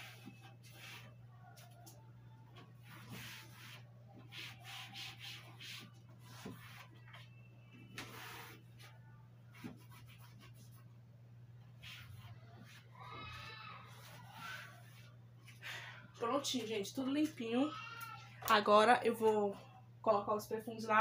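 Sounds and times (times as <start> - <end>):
cloth wiping shelves: 0.0 - 1.8, 2.8 - 7.3, 8.0 - 10.8, 11.8 - 15.2.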